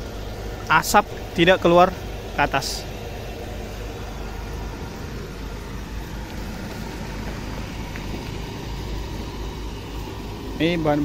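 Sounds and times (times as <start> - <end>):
low rumble: 0.0 - 10.8
incinerator burner and fan running: 0.0 - 11.0.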